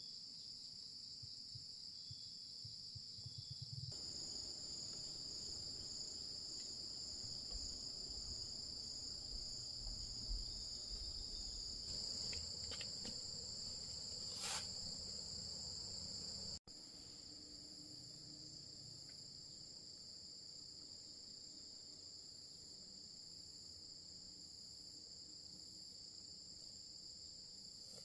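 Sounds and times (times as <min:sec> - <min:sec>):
insects shrilling: 0:11.4 - 0:16.6.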